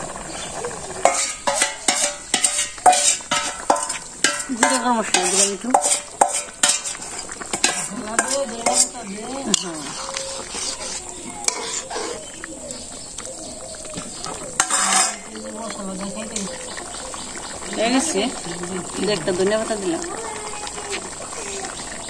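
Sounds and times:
curry sizzling: 0.0 - 22.0
spatula scraping metal pot: 0.9 - 12.3, 14.5 - 15.4.

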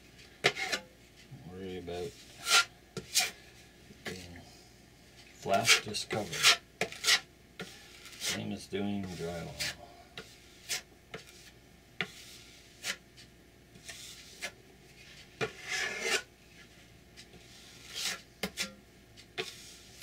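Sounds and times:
filling knife scraping on board: 0.4 - 0.8, 2.3 - 3.4, 5.5 - 13.0, 13.8 - 20.0.

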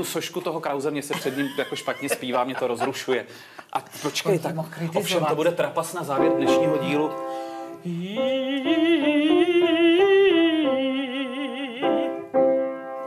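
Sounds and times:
person singing vocal exercise: 7.8 - 12.1.

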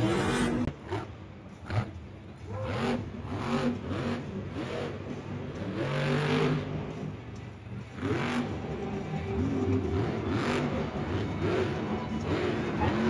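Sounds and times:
monster truck engine revving: 0.0 - 13.0.

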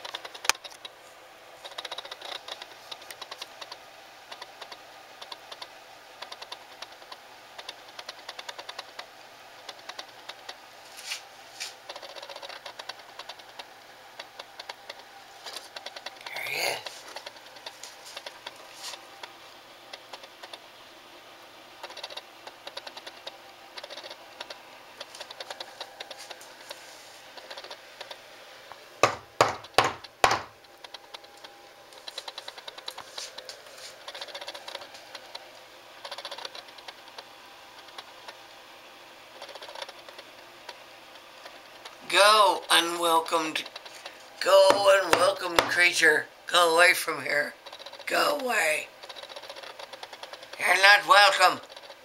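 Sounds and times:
loud knocks on wall: 29.0 - 30.5.

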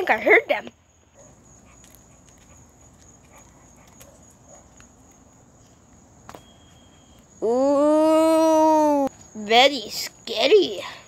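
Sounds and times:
distant dogs barking: 1.0 - 5.0
thin steady high tone: 5.6 - 11.0.

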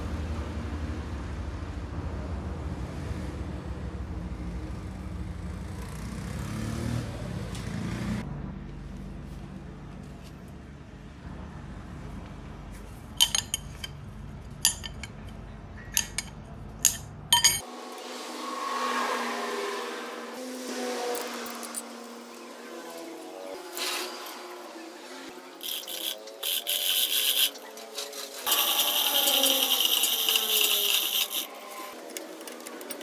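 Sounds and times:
spanner clinking on bolts: 13.2 - 14.0, 14.6 - 17.6, 28.5 - 31.5.

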